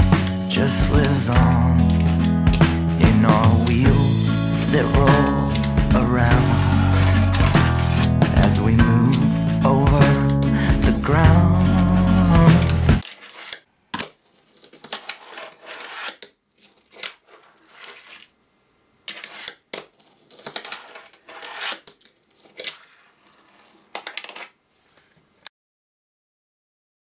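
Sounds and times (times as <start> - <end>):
small objects clicking on desk: 19.1 - 24.6.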